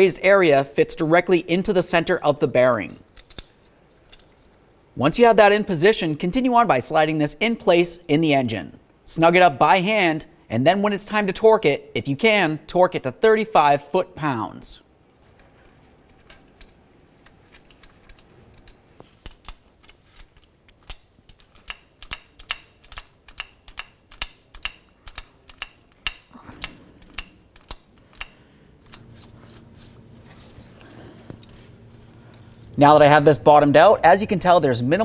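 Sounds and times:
ratcheting wrench clicking: 0:16.1 - 0:29.0.

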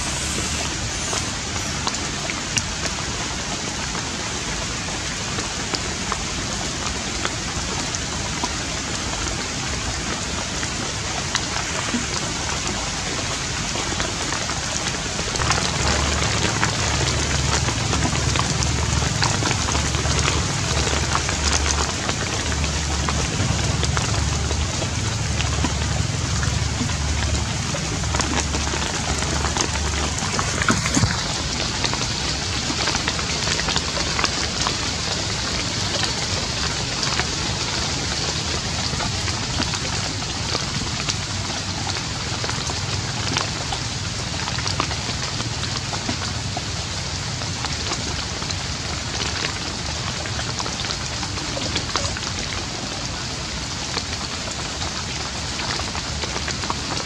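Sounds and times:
steady rain falling: 0:00.0 - 0:57.0
low rumble: 0:15.4 - 0:37.9.

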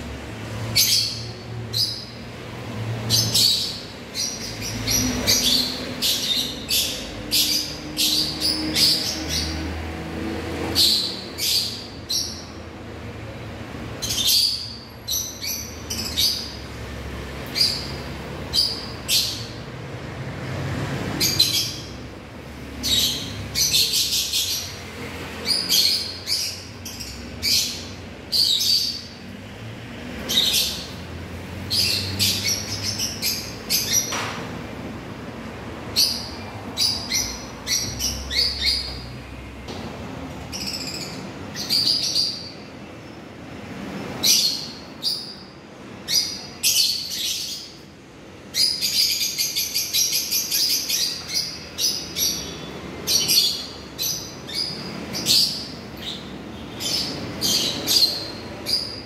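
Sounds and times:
lovebirds chirping shrilly: 0:48.5 - 0:59.0.

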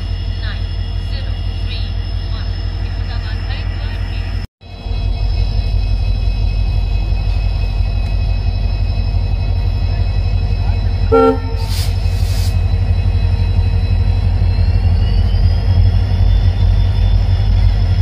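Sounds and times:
diesel locomotive engine drone: 0:00.0 - 0:18.0
train horn toot: 0:11.1 - 0:11.9.

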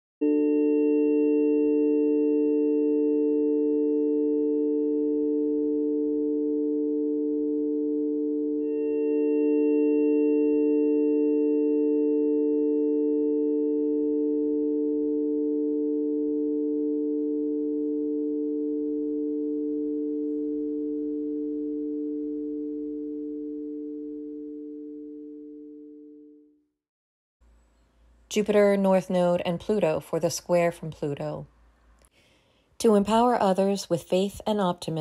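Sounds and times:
held chord of pure tones: 0:00.2 - 0:26.6.

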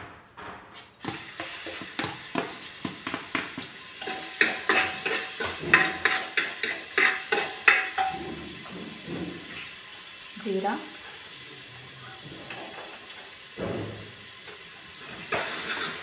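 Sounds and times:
faint sizzle: 0:01.0 - 0:16.0
metal spoon scraping pot: 0:04.0 - 0:09.6, 0:15.1 - 0:16.0.

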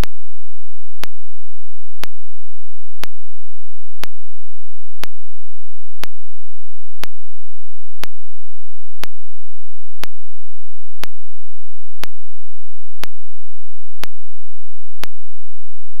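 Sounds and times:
faint low hum: 0:00.0 - 0:16.0
sharp ticks: 0:01.0 - 0:01.2, 0:02.0 - 0:02.2, 0:10.0 - 0:10.2, 0:14.0 - 0:14.2, 0:15.0 - 0:15.2.

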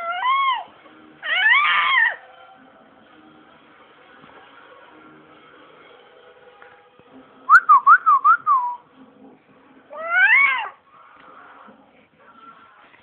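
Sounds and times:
baby squealing: 0:00.0 - 0:02.2, 0:09.9 - 0:10.8.

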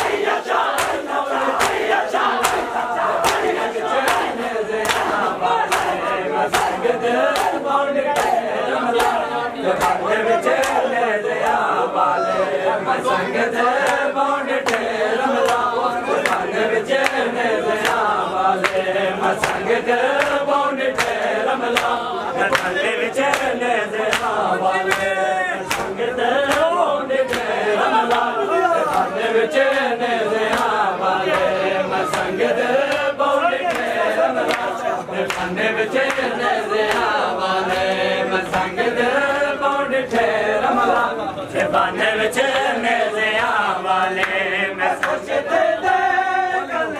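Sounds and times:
hands slapping bare chests: 0:00.0 - 0:07.6, 0:19.4 - 0:20.4, 0:21.0 - 0:25.1, 0:25.7 - 0:26.7
men chanting together: 0:00.0 - 0:46.9.

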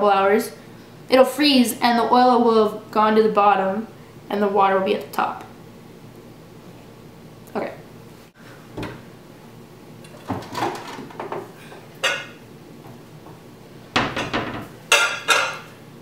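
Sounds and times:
cupboard opening and shutting: 0:08.7 - 0:09.1, 0:10.1 - 0:11.5.

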